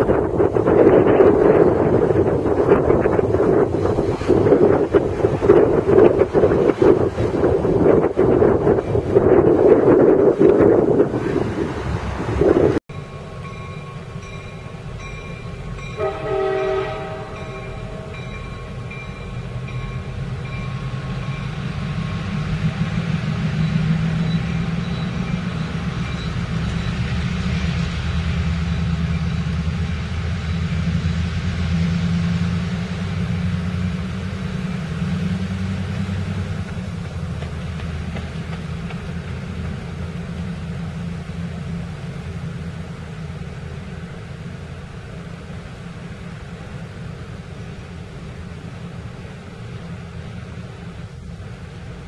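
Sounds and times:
diesel engine rumbling: 0.0s - 52.0s
crossing bell ringing: 12.9s - 22.3s, 23.5s - 27.1s
locomotive horn blast: 15.8s - 18.8s.

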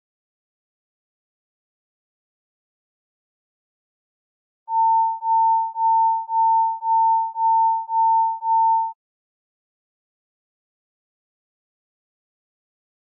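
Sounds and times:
electronic alert beeps: 4.7s - 9.0s.

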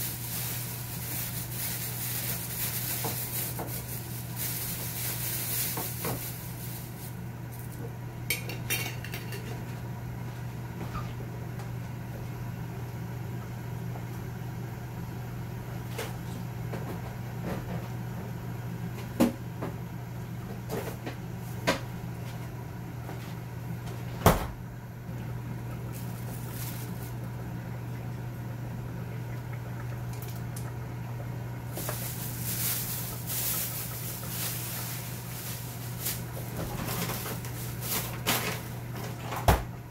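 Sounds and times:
steady low hum: 0.0s - 39.9s
rustling: 26.0s - 27.2s, 31.7s - 38.7s.

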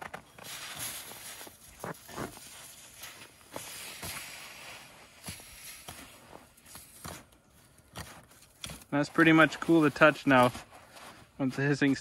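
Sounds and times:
snow crunching: 0.0s - 12.0s
hot metal hissing in snow: 2.5s - 6.2s.

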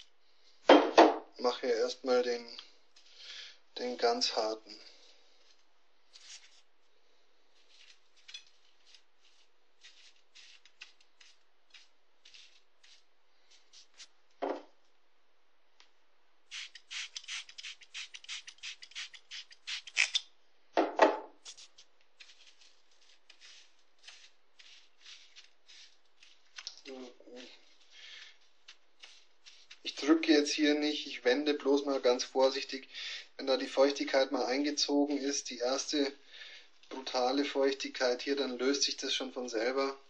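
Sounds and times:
dry tobacco crackling and rustling: 5.2s - 14.4s, 21.4s - 30.7s.

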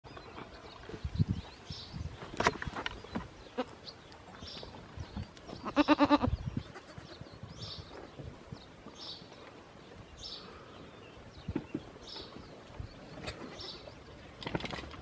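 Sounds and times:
small birds chirping: 0.1s - 14.9s
animal bleating: 5.6s - 7.2s.

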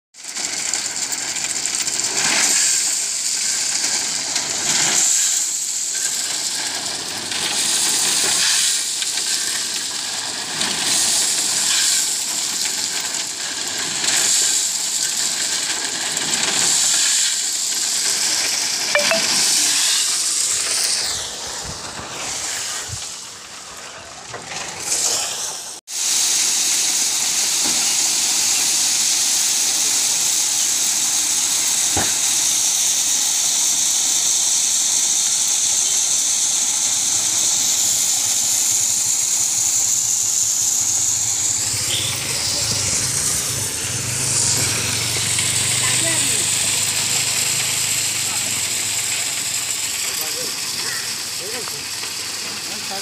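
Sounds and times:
stone chips pouring and sliding: 0.2s - 53.0s.

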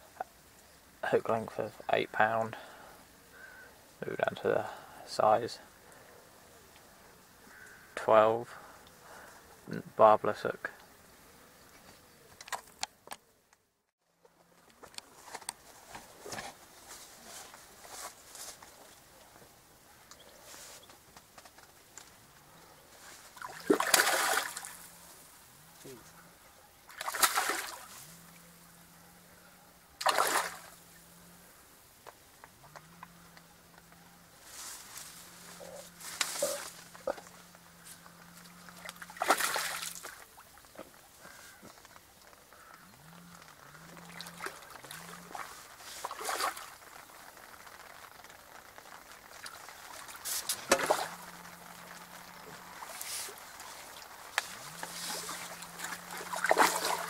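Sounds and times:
fish thrashing in water: 23.3s - 24.9s, 26.9s - 28.0s, 30.0s - 30.8s, 38.6s - 40.6s, 43.8s - 47.7s, 49.2s - 57.0s
sharp splash: 23.4s - 24.8s, 26.9s - 28.0s, 30.0s - 30.8s, 39.1s - 40.2s, 45.3s - 46.8s, 49.4s - 51.2s, 52.8s - 57.0s.

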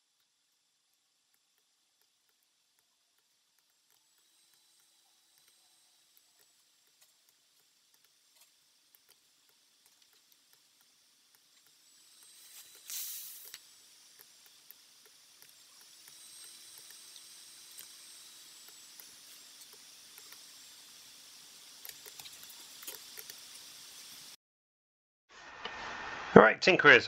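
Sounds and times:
steady hiss: 0.0s - 24.4s
short rush of noise: 25.3s - 26.7s.

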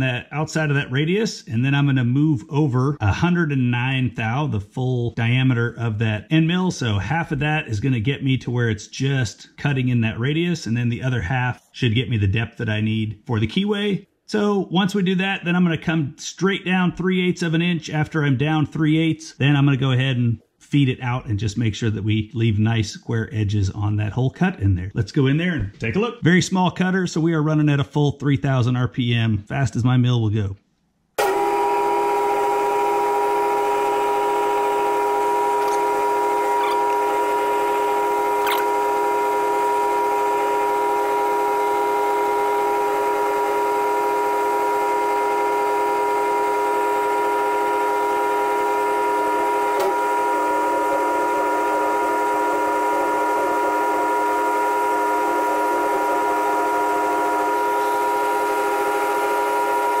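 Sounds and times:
mill-drill spindle whine: 31.2s - 60.0s.

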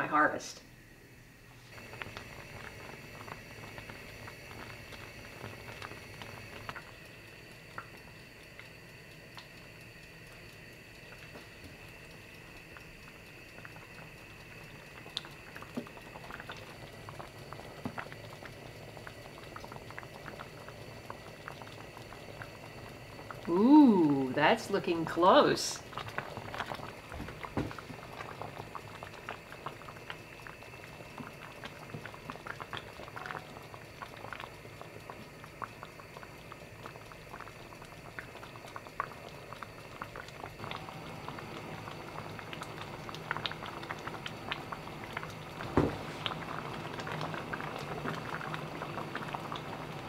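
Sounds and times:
jam bubbling and popping: 1.6s - 50.0s
dull knock: 45.8s - 46.0s.

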